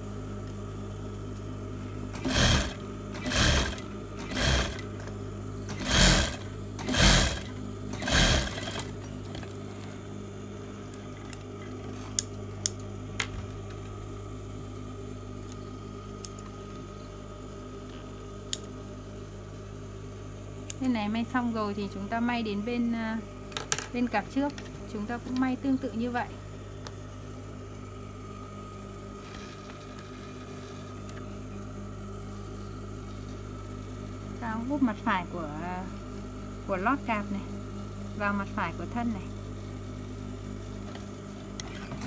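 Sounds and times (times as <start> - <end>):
steady low hum: 0.0 - 42.0
sewing machine stitching: 2.2 - 5.0, 5.7 - 9.4.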